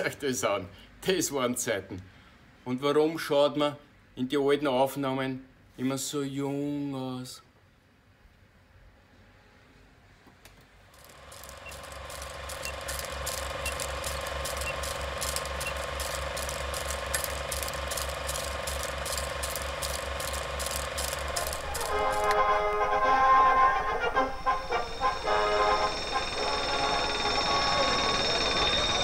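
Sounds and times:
film projector clatter: 11.0s - 22.5s
steady hum: 11.0s - 29.0s
music: 21.4s - 29.0s.

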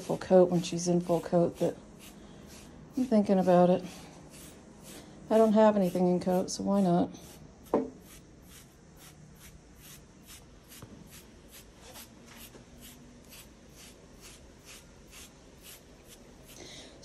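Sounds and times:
carding knife raking dog fur: 0.0s - 7.4s.

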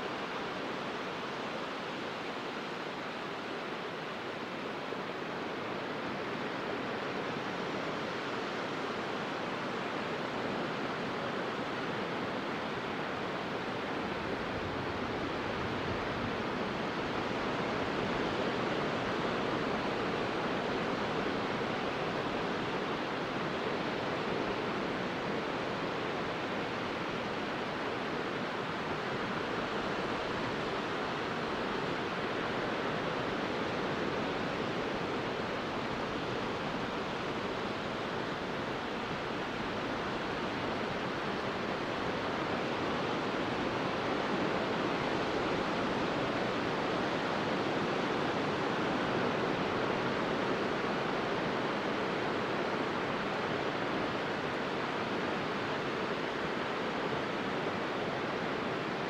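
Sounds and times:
small waves washing on beach: 0.2s - 59.0s.

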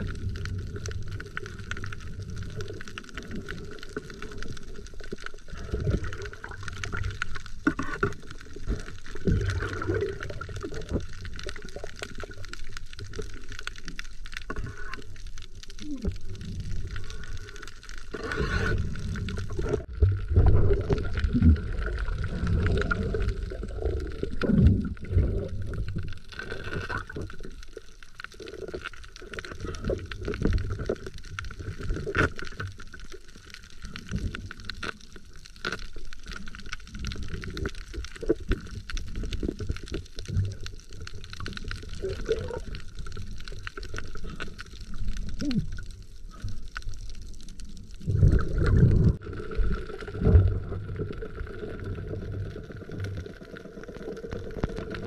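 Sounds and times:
muffled underwater water movement: 0.0s - 55.0s
underwater knocks and bumps: 5.6s - 12.2s, 18.3s - 26.1s.

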